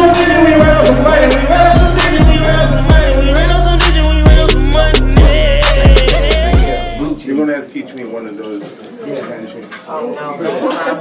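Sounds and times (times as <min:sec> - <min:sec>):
sliding bass notes: 0:00.0 - 0:07.2
wavering melody line: 0:00.0 - 0:07.2.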